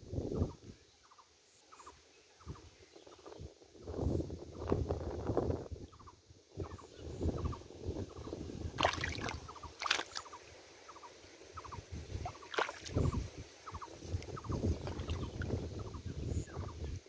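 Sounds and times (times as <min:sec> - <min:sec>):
faint chirping calls: 0:00.2 - 0:04.7, 0:05.4 - 0:17.0
hands sloshing through water: 0:08.8 - 0:10.4, 0:12.2 - 0:13.2, 0:14.2 - 0:15.5
sharp water splashes: 0:08.8 - 0:10.4, 0:12.2 - 0:13.8, 0:14.8 - 0:15.5.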